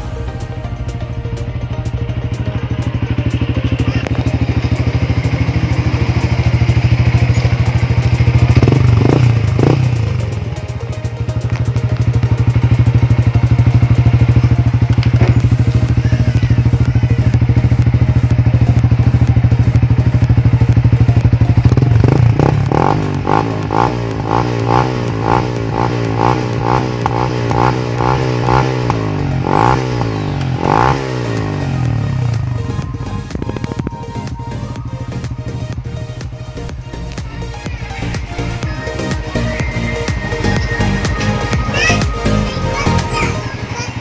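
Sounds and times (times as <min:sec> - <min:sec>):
motorcycle exhaust pulsing: 0:00.0 - 0:44.0.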